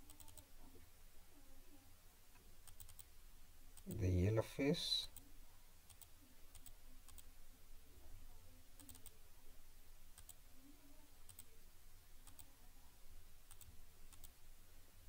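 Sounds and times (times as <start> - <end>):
computer mouse clicking: 0.0 - 0.4, 2.6 - 3.1, 5.9 - 7.3, 8.8 - 9.2, 10.2 - 10.4, 11.3 - 11.5, 12.2 - 12.5, 13.5 - 14.4
low room hum: 0.0 - 15.0.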